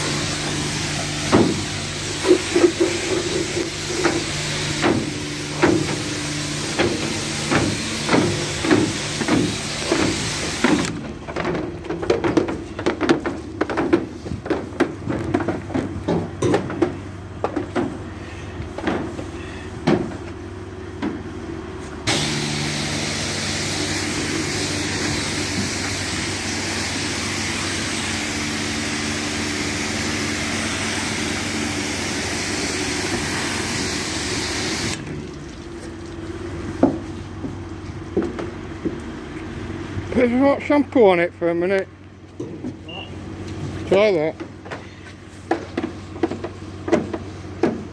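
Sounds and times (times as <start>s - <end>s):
jet-wash spraying water: 0.0s - 11.0s, 22.1s - 36.5s
low pump hum: 22.0s - 40.2s.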